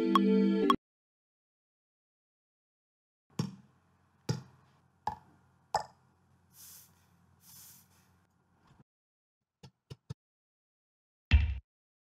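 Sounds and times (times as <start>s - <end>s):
soft airy hisses: 6.5s - 8.2s.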